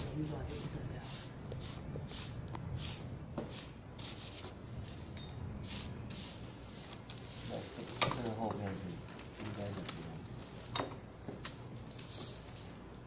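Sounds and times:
brush swishing on paper: 0:00.3 - 0:05.0, 0:05.6 - 0:08.0.

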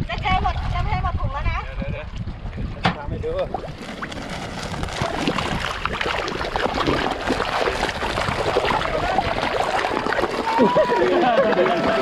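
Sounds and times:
fish splashing and slurping: 0:00.0 - 0:12.0.

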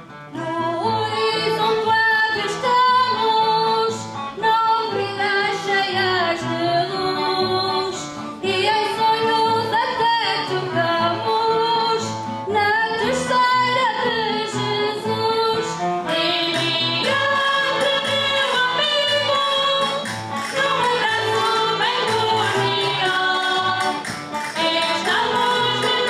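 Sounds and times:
women singing together: 0:00.4 - 0:26.0
band accompaniment: 0:15.7 - 0:26.0.

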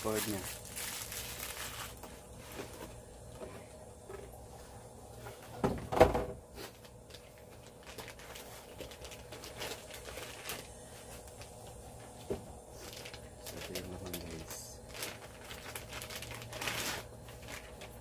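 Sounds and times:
packaging rustling: 0:00.0 - 0:03.0, 0:06.6 - 0:18.0.

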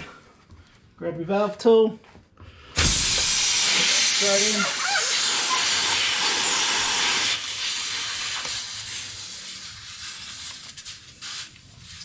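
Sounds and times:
air hissing from tyre valve: 0:02.7 - 0:09.6.

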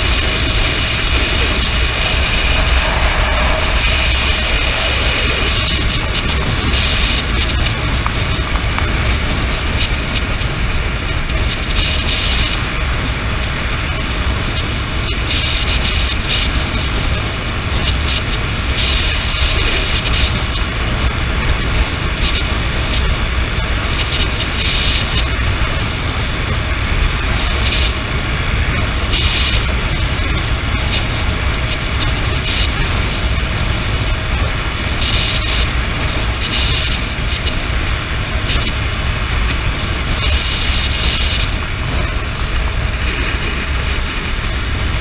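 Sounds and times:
motorcycle engine and tyre noise: 0:00.0 - 0:45.0
wind rushing over microphone: 0:00.0 - 0:45.0.

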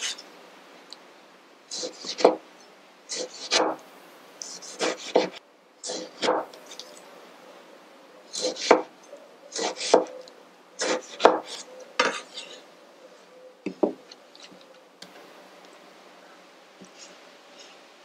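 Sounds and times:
knife slicing on wooden board: 0:09.6 - 0:10.1, 0:10.8 - 0:12.6.

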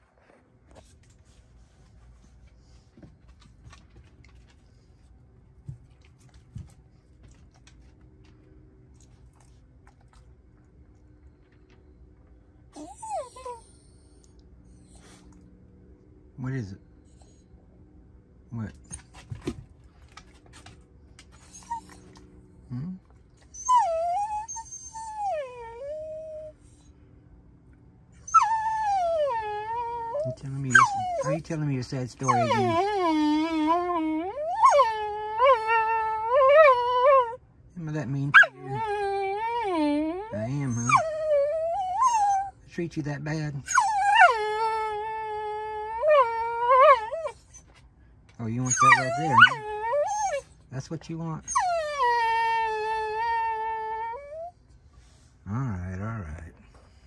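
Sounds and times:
dog whining: 0:12.7 - 0:15.4, 0:21.2 - 0:26.9, 0:28.2 - 0:37.4, 0:38.2 - 0:42.6, 0:43.6 - 0:47.8, 0:48.6 - 0:50.7, 0:51.4 - 0:55.2.

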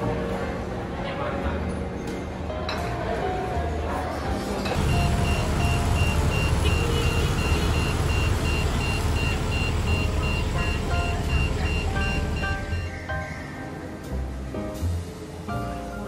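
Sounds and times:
background music: 0:00.0 - 0:16.0
street traffic rumble: 0:03.8 - 0:15.5
high repeating beep: 0:04.8 - 0:13.0.

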